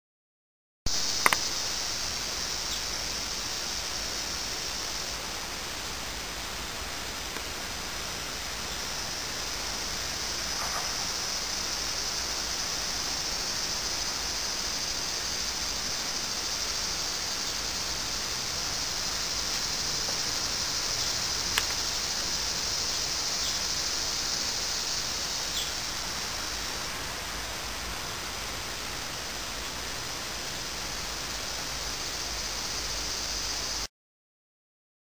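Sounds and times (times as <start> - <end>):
outdoor background hiss: 0.9 - 33.9
sharp click: 1.2 - 1.5.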